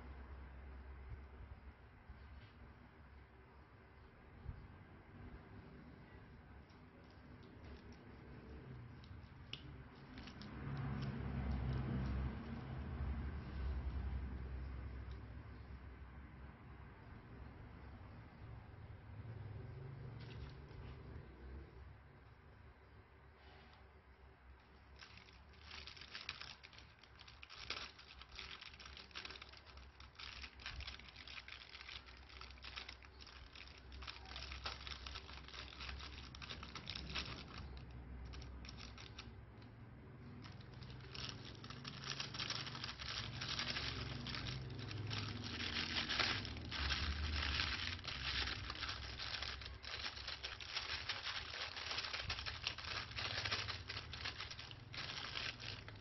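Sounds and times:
beads pattering onto slime: 0:06.6 - 0:13.9, 0:24.7 - 0:39.4, 0:40.4 - 0:56.0
plastic piping bag crinkling: 0:06.6 - 0:14.0, 0:24.7 - 0:39.3, 0:40.4 - 0:56.0.

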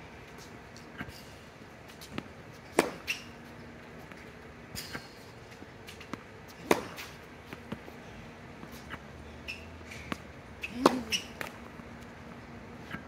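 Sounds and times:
tennis racket hitting ball: 0:02.7 - 0:03.2, 0:06.6 - 0:07.8, 0:10.6 - 0:11.5.

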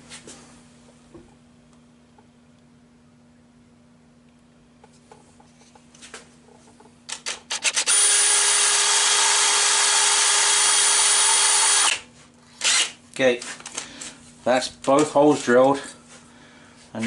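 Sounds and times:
drill trigger blips: 0:07.1 - 0:12.0, 0:12.6 - 0:13.0
drill drilling into metal: 0:07.5 - 0:12.0, 0:12.6 - 0:13.0.

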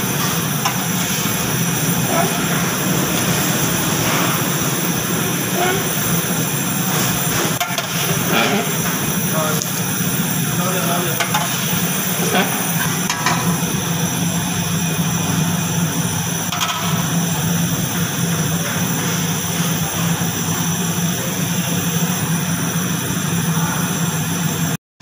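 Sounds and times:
low hum: 0:00.0 - 0:08.4
kitchen equipment roaring: 0:00.0 - 0:24.8.

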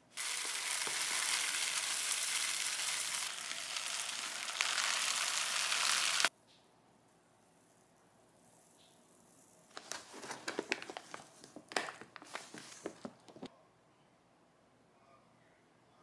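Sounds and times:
rice bag crinkling: 0:00.1 - 0:06.3, 0:09.7 - 0:13.5.

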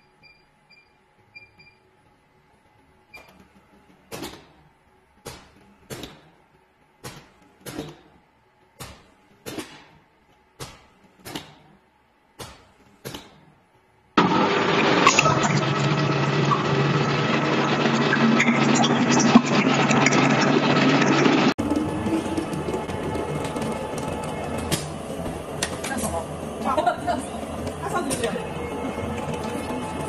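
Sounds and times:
loud steady noise: 0:14.2 - 0:30.0.

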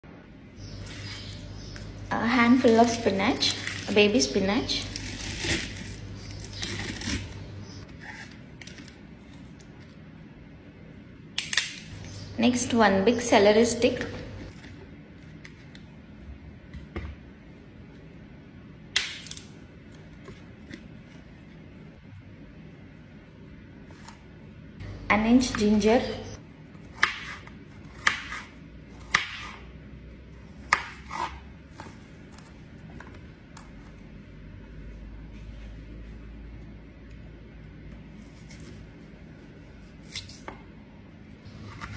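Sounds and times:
leaves crackling: 0:00.7 - 0:07.8
leaves rustling in a jar: 0:02.5 - 0:07.5.

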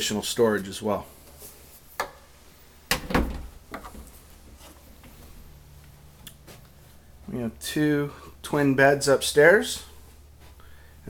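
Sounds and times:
door thump: 0:02.9 - 0:03.6.

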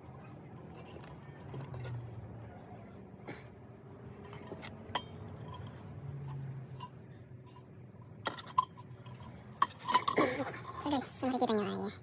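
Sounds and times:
light metallic clicks and clinks: 0:04.1 - 0:10.8.

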